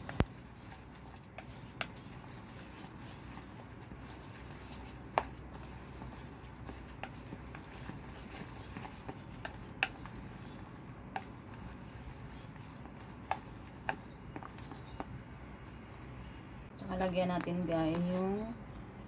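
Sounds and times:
utensil stirring thick batter: 0:00.0 - 0:14.9.

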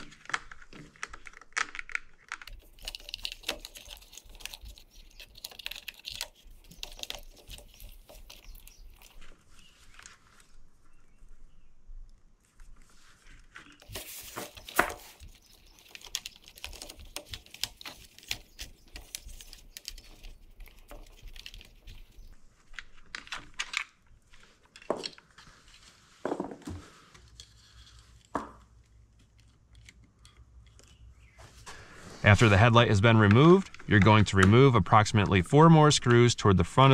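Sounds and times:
small plastic clicks: 0:00.0 - 0:09.3, 0:13.8 - 0:24.0, 0:28.6 - 0:31.2
cables rustling and scraping: 0:00.0 - 0:11.3, 0:12.4 - 0:35.4.

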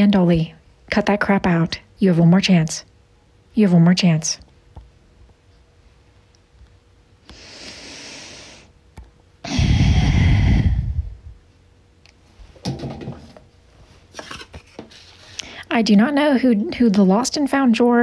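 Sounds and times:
person breathing in: 0:07.3 - 0:08.7, 0:09.4 - 0:11.2.

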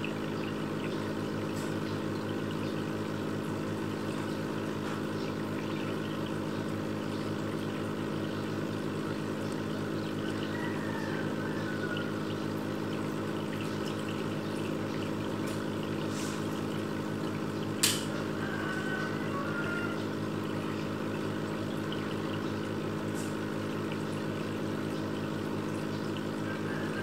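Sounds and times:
filter pump humming: 0:00.0 - 0:27.0
water trickling: 0:00.0 - 0:27.0
sharp click: 0:17.8 - 0:18.1.

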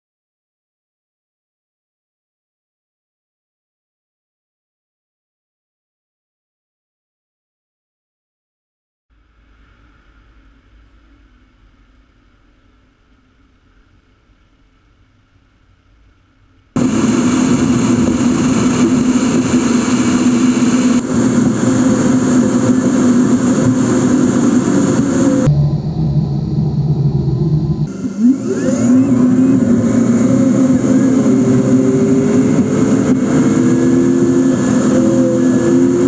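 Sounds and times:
faint steady hum: 0:09.1 - 0:16.9
car road and engine noise: 0:16.0 - 0:36.0.

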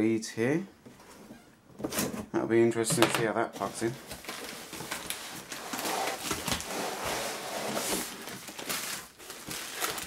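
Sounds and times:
rustling plastic packaging: 0:03.6 - 0:10.0.

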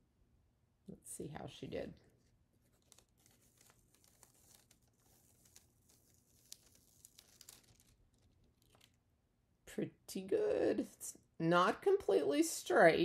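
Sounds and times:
foil sheet crinkling: 0:02.6 - 0:09.0.

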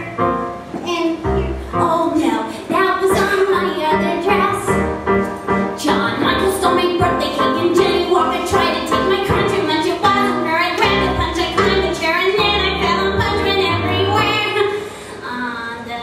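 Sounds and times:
keyboard piano accompaniment: 0:00.0 - 0:15.2
woman singing: 0:00.8 - 0:04.8, 0:05.7 - 0:16.0.

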